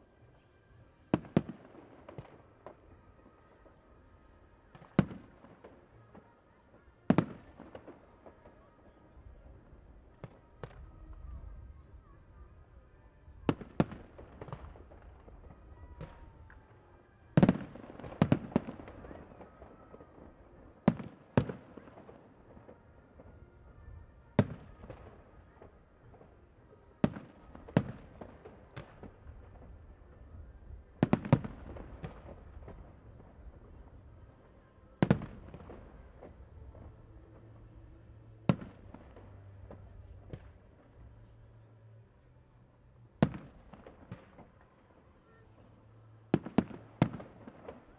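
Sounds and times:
fireworks bursting with loud bangs: 0:01.0 - 0:11.7, 0:13.4 - 0:41.4, 0:43.2 - 0:47.9
light firework pops: 0:43.2 - 0:44.7, 0:46.3 - 0:47.9.

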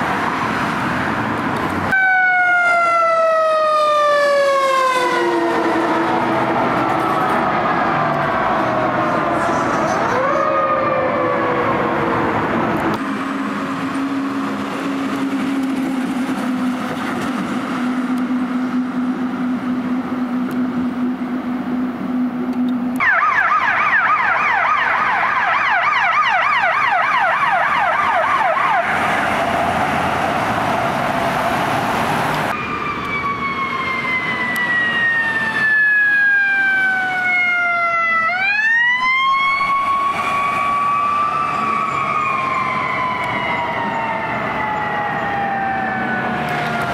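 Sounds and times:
fire engine sirens: 0:00.0 - 0:46.9.

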